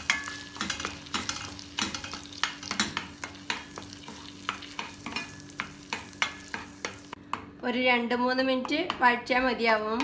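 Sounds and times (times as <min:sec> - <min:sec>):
paste sizzling in butter: 0:00.0 - 0:07.2
spatula scraping a pan: 0:00.0 - 0:07.2.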